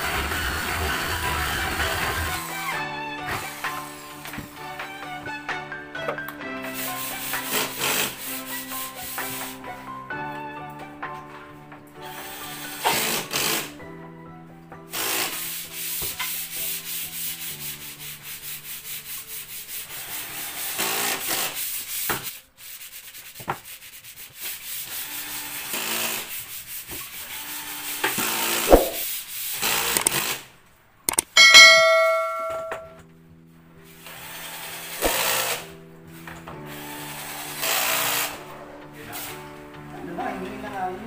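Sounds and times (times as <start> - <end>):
drill boring into wood: 12.1 - 13.7, 19.9 - 21.6, 25.0 - 26.3, 27.3 - 28.7, 29.5 - 30.4, 34.1 - 35.7, 36.8 - 38.4
drill driving screws: 12.1 - 13.7, 20.2 - 21.6, 25.3 - 26.3, 27.7 - 28.7, 29.5 - 30.4, 34.6 - 35.7, 36.8 - 38.4.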